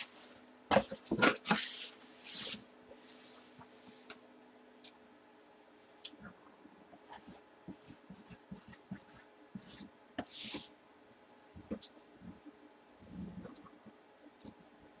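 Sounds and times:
marker pen scratching on cardboard: 7.1s - 10.7s.

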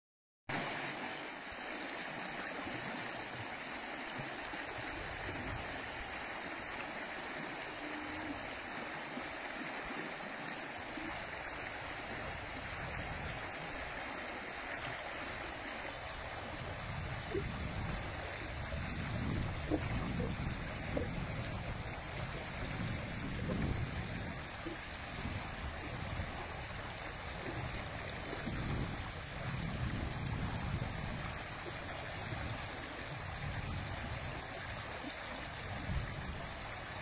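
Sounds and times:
stream gurgling over rocks: 0.5s - 37.0s.

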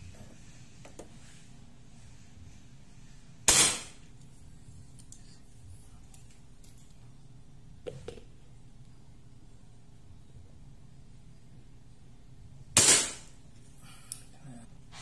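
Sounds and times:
airsoft rifle shot: 3.5s - 4.0s, 12.8s - 13.3s.

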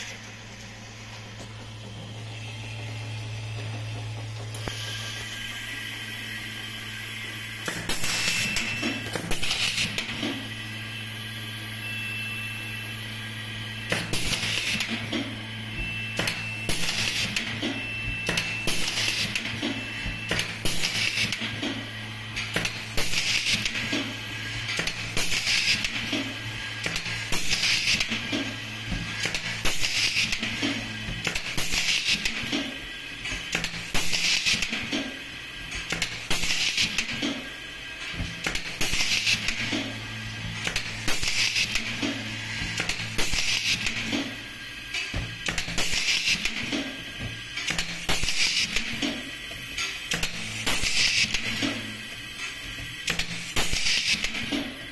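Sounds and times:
steady low hum: 0.0s - 54.9s
rivet gun air hiss and clicks: 40.6s - 49.2s, 49.8s - 54.8s.

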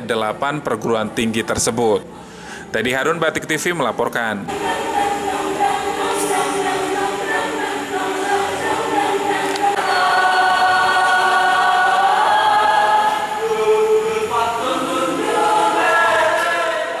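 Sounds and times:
mixed choir singing in harmony: 4.5s - 17.0s.

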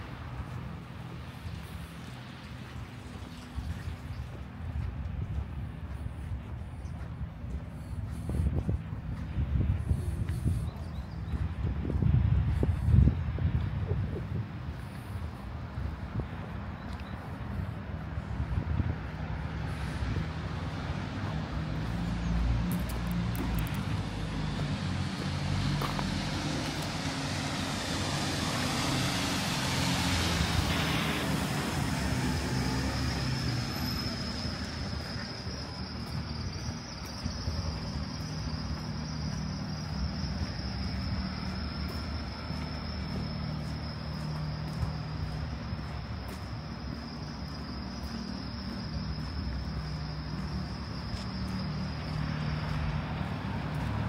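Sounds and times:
low hum of engines: 0.0s - 54.0s
vehicle passing close by: 11.3s - 54.0s.

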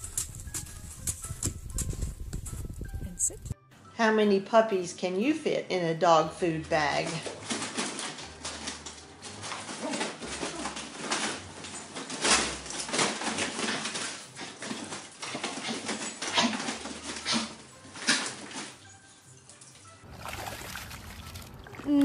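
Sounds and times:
dog food bag crinkling: 7.1s - 18.8s.

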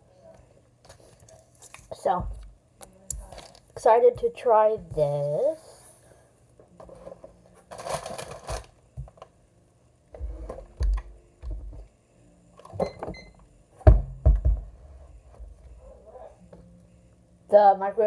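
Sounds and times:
snack package crinkling: 7.6s - 8.8s.

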